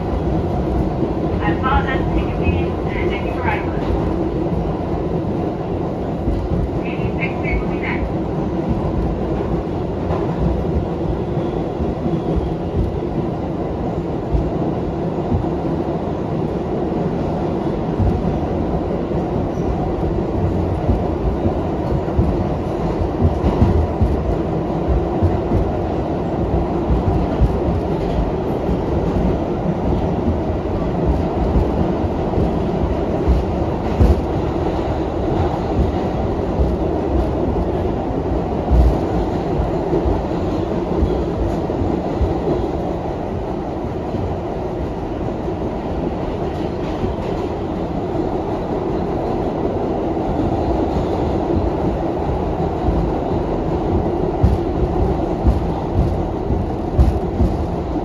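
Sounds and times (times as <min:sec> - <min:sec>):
steel wheels rumbling on rail: 0:00.0 - 0:58.0
wheels knocking on rail joints: 0:53.9 - 0:57.9.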